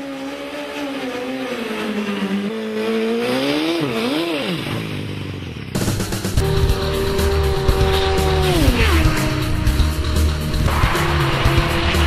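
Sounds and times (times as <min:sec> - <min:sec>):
motorcycle engine revving high: 0:00.0 - 0:12.0
steady rushing noise: 0:05.8 - 0:12.0.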